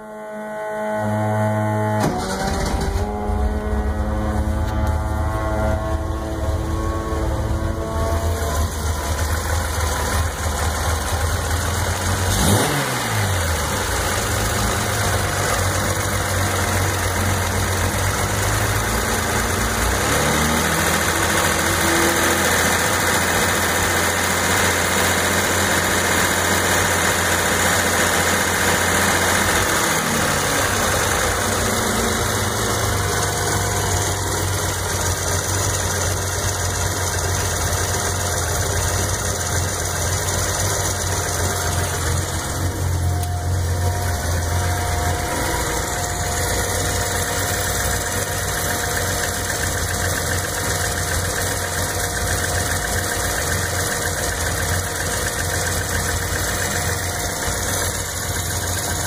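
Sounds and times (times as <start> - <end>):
car engine running: 0.8 - 59.0.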